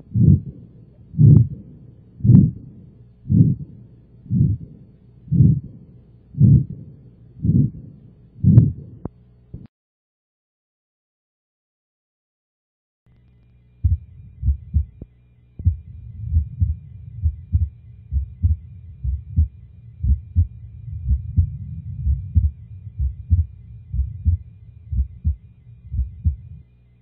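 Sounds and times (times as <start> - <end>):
heartbeat thuds: 0.1 - 0.6, 1.2 - 1.6, 2.2 - 2.6, 3.3 - 3.7, 4.3 - 4.7, 5.3 - 5.7, 6.4 - 6.8, 7.4 - 7.8, 8.4 - 8.8, 13.8 - 26.6.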